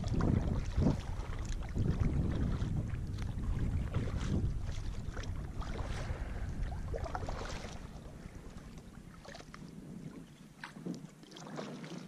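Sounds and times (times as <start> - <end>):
paddle splashing water: 0.0 - 12.0
wind noise on microphone: 0.0 - 12.0.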